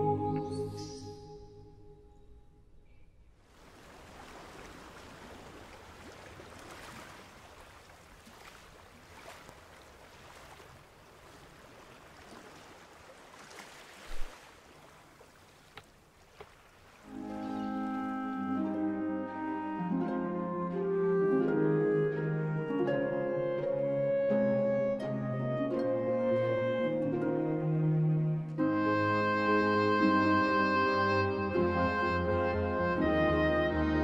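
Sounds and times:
small waves washing onto beach: 0:03.5 - 0:18.2
faint clicks: 0:15.7 - 0:16.6.

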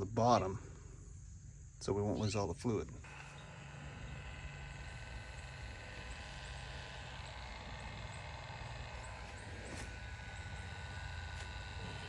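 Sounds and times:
faint motor whine: 0:00.4 - 0:12.0
heat gun fan blowing: 0:03.0 - 0:12.0.

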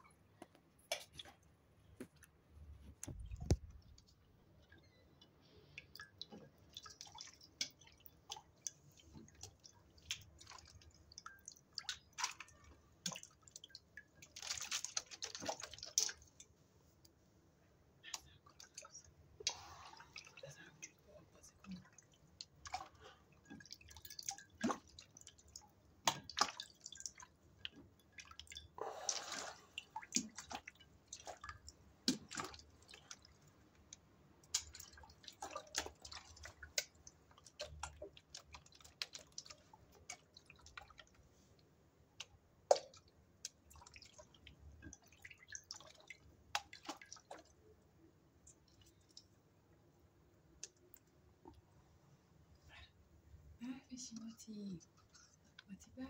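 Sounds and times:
water dripping and splashing: 0:03.0 - 0:17.2, 0:18.0 - 0:41.3, 0:42.2 - 0:47.7, 0:48.3 - 0:49.4.

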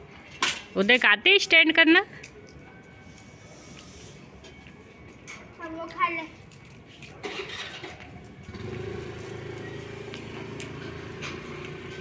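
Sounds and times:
vehicle engine running: 0:07.3 - 0:12.0.

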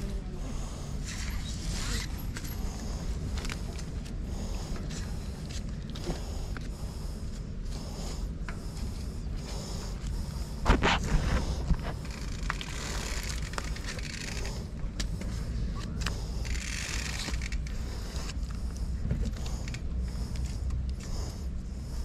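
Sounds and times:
steady low rumble: 0:00.0 - 0:22.0
scattered clicks: 0:11.8 - 0:21.1.

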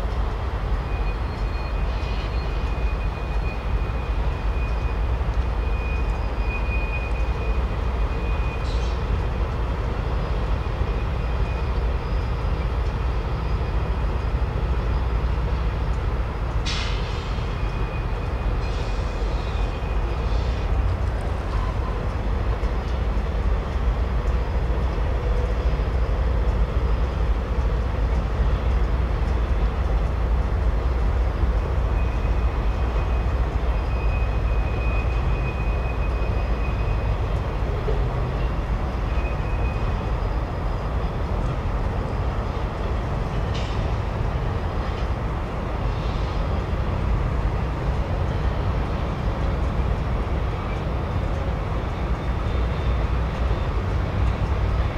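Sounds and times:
freight train rumbling: 0:00.0 - 0:54.9.

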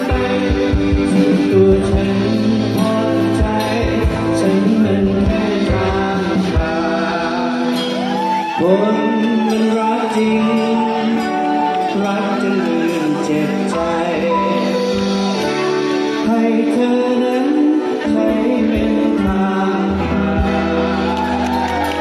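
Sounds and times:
drum kit: 0:00.0 - 0:08.5
man singing: 0:00.0 - 0:21.4
electric guitar: 0:00.0 - 0:22.0.

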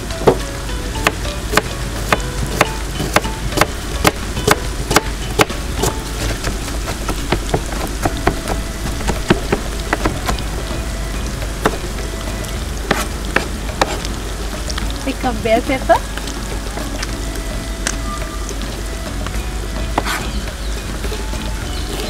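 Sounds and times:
chicken sizzling in pan: 0:00.0 - 0:22.0
knife chopping onion on board: 0:01.0 - 0:10.4, 0:12.9 - 0:14.0, 0:20.0 - 0:20.3.

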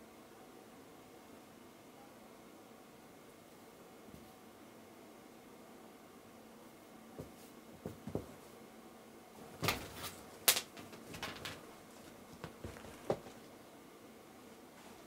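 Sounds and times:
fabric rustling: 0:09.4 - 0:13.6.

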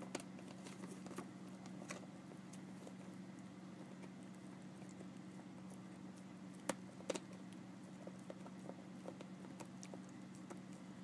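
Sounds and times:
puppy gnawing on a chew: 0:00.0 - 0:11.0.

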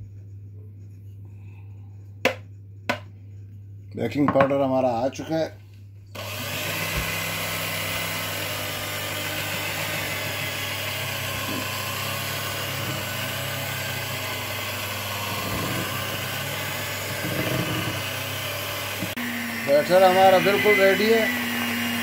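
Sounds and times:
electric hand mixer running: 0:06.2 - 0:22.0.

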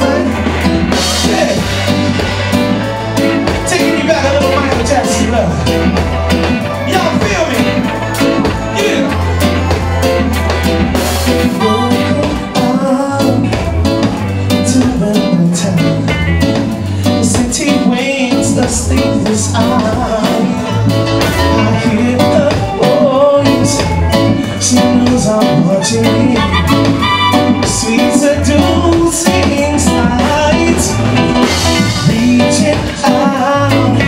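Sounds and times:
man singing into a microphone: 0:00.0 - 0:01.8, 0:03.7 - 0:05.8, 0:11.5 - 0:34.0
live reggae band playing: 0:00.0 - 0:34.0.

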